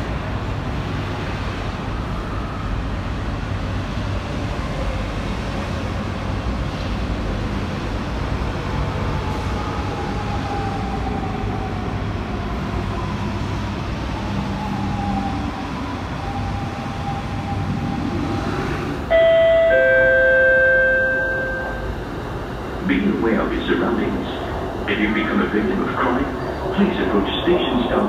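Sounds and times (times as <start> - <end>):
faint train whine: 0.0 - 28.0
train rumbling on track: 0.0 - 28.0
public address chime: 19.1 - 22.1.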